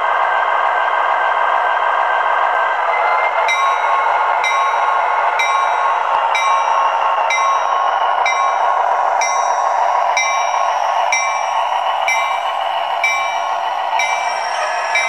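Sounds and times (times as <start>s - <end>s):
diesel locomotive engine through speaker: 0.0s - 15.0s
locomotive bell ringing: 2.9s - 15.0s.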